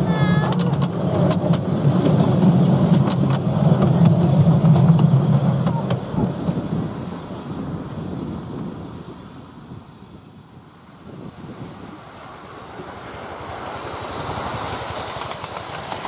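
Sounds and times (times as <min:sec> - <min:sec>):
miniature train rumbling: 0:00.0 - 0:16.0
sharp track clicks: 0:00.4 - 0:06.1, 0:15.0 - 0:16.0.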